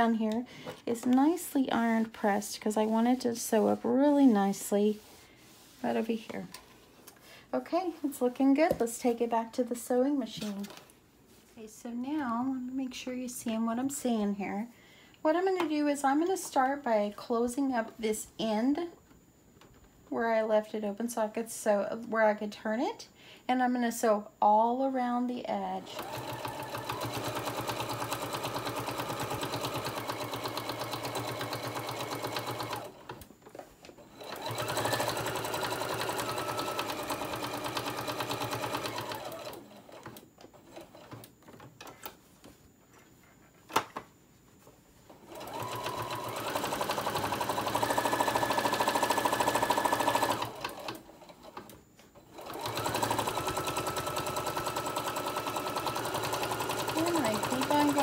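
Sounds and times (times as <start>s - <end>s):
electric sewing machine stitching: 25.8s - 33.2s, 34.0s - 41.3s, 45.3s - 51.7s, 52.3s - 58.0s.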